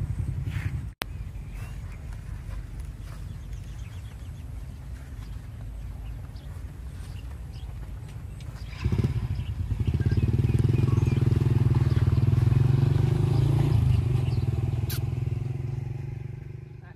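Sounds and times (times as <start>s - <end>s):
small engine chugging: 8.4s - 15.6s.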